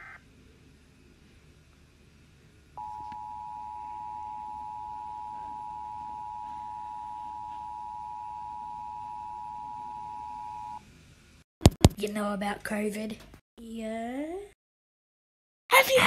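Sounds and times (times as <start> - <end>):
faint low hum: 0.0 - 11.4.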